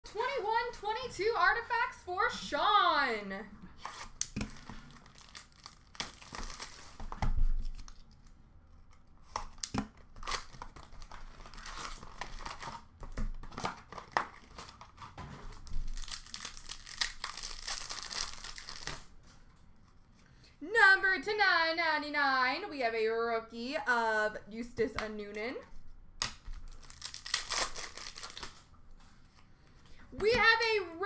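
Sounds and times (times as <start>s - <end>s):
card pack wrapper crinkling: 3.8s - 8.3s, 9.2s - 19.1s, 26.4s - 28.7s.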